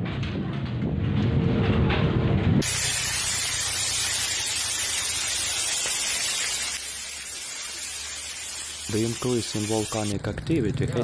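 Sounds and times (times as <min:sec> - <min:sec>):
low rumbling: 0:00.0 - 0:04.0
fine particles pattering on surface: 0:02.6 - 0:10.1.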